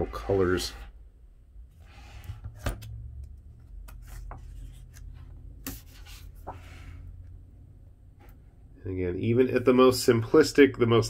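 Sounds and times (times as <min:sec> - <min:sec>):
book pages rustling: 0:02.4 - 0:06.9.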